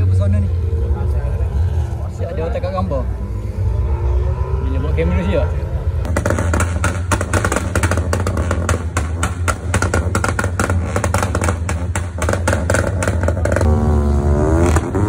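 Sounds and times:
exhaust crackling bangs: 6.0s - 13.8s.

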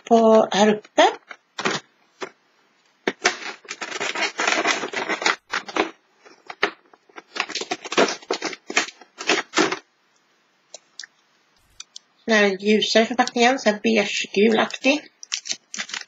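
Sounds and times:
cardboard and foil crackling: 3.2s - 9.8s, 15.3s - 16.0s.

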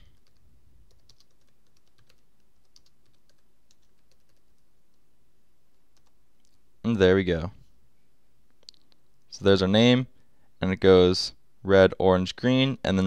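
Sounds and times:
faint keyboard typing: 0.0s - 5.0s, 5.7s - 6.6s.

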